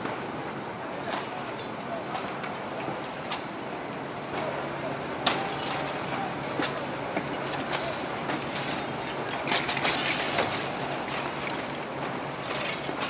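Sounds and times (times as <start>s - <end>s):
knocks and clatter: 6.6s - 11.8s.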